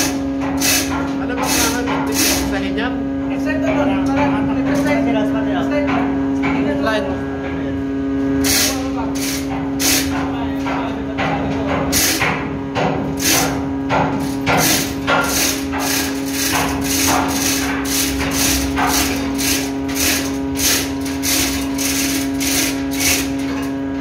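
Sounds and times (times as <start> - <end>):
steady hum: 0.0 - 24.0
metallic ratchet clicks: 14.6 - 23.5.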